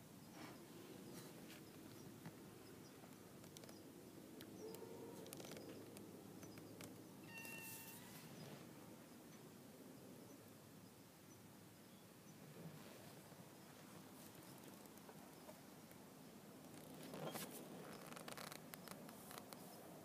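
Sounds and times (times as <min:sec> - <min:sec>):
faint short pitched calls: 0:07.2 - 0:08.6.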